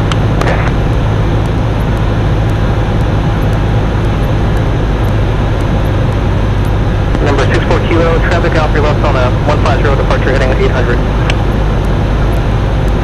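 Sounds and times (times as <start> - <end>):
airplane engine drone: 0.0 - 13.0.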